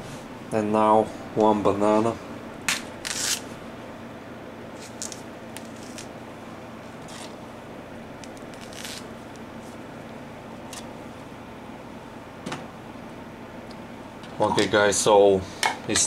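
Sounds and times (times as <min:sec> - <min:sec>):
banana peeling rustles: 0:02.9 - 0:03.5, 0:04.7 - 0:06.2, 0:06.8 - 0:07.4, 0:08.2 - 0:09.9
banana squishing: 0:08.2 - 0:09.1.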